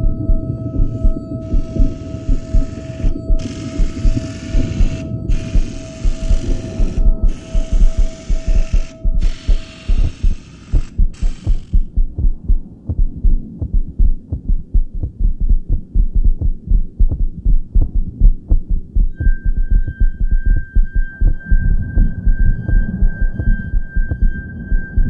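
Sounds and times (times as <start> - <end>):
low pulsing beat: 0.0 - 25.0
high hiss: 1.4 - 11.9.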